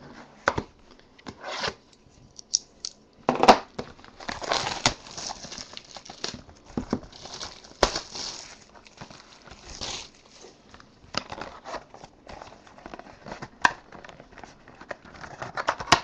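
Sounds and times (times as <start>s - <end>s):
plastic wrap crinkling and tearing: 3.6s - 16.0s.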